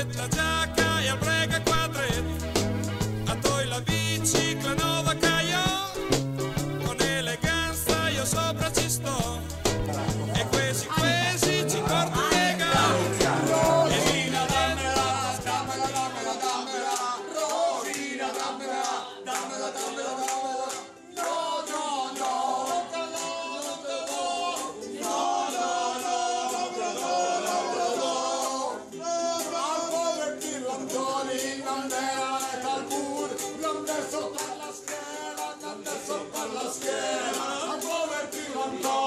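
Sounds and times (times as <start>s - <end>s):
strummed ukulele: 0.0s - 18.8s, 28.8s - 39.0s
men singing in chorus: 3.3s - 6.0s, 6.8s - 39.0s.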